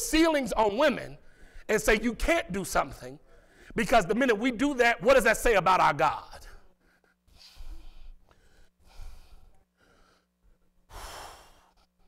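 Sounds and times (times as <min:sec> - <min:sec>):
faint hum: 0:00.0 - 0:12.0.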